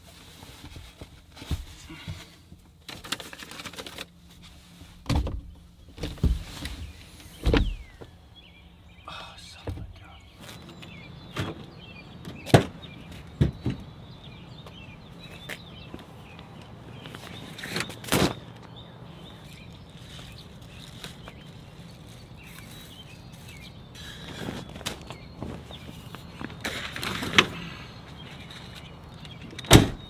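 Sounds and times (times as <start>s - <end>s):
knocks and thumps in truck bed: 5.0s - 8.0s, 12.2s - 13.9s, 29.6s - 30.0s.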